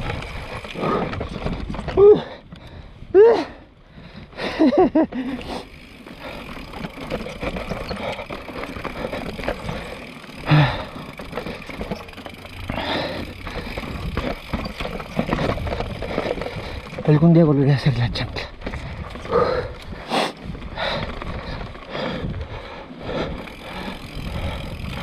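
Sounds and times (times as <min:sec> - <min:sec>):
tyres rolling over dirt: 0:00.0 - 0:02.6, 0:04.6 - 0:19.3
bike rattling: 0:00.0 - 0:25.0.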